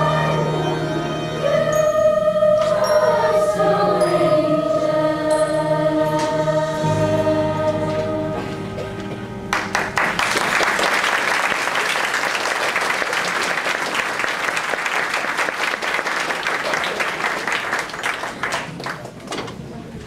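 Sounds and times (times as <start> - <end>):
audience applauding: 9.5 - 19.2.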